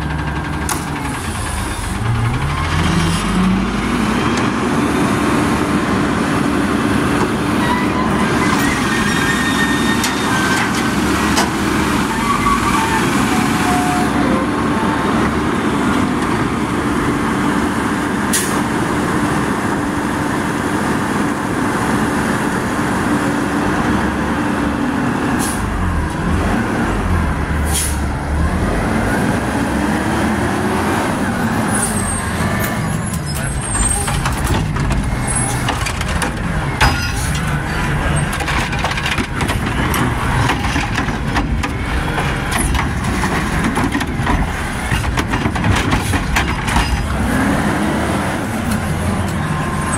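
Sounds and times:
garbage truck diesel engine revving: 0:00.0 - 0:45.4, 0:46.1 - 0:49.9
mechanical arm clanking and knocking: 0:34.0 - 0:47.2.

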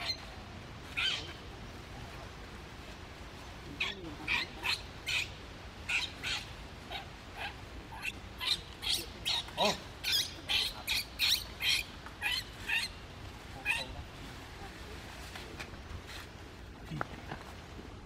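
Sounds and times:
baby monkey squealing: 0:01.0 - 0:01.4, 0:03.8 - 0:13.0.

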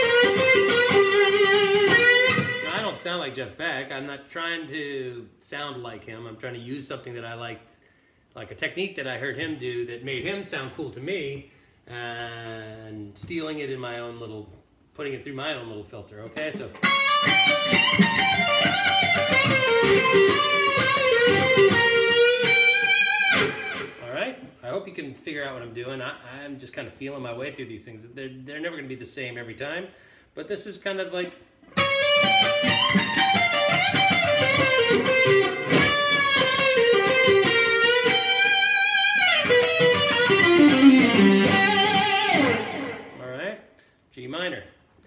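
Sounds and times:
electric guitar lick with bends: 0:00.0 - 0:02.8, 0:16.6 - 0:24.0, 0:31.7 - 0:43.2.

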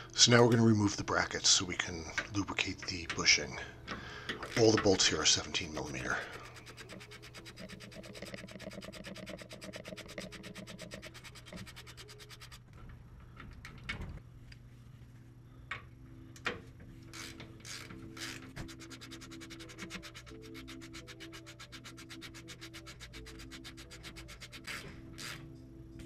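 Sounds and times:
soft background music: 0:00.0 - 0:26.0
ratchet wrench clicking: 0:17.1 - 0:21.4, 0:22.6 - 0:25.4.

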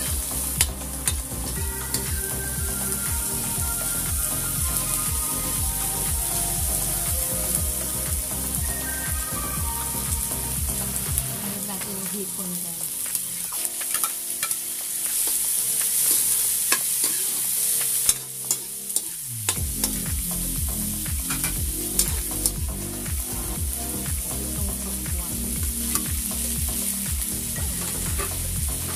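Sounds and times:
vegetables sizzling in oil: 0:07.8 - 0:19.8.

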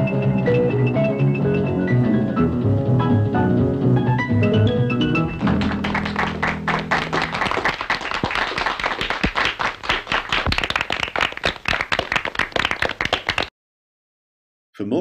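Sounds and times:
people applauding: 0:05.3 - 0:13.5.

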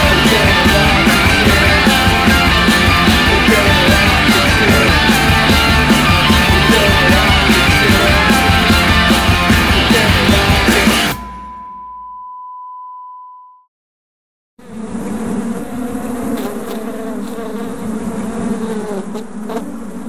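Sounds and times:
wasps buzzing: 0:00.0 - 0:11.0, 0:14.6 - 0:20.0
steady high tone: 0:00.0 - 0:13.4.

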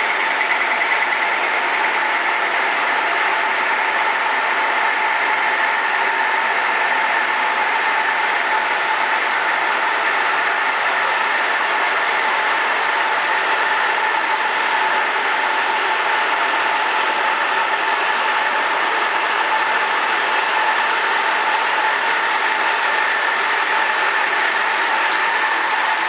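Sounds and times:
looms running: 0:00.0 - 0:03.9
constant machine whine: 0:00.0 - 0:26.0.

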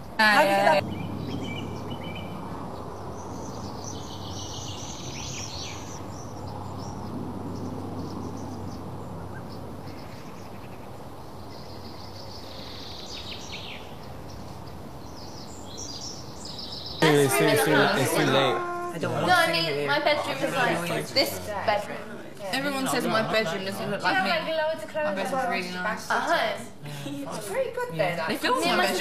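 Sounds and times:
small birds chirping: 0:00.0 - 0:17.2.

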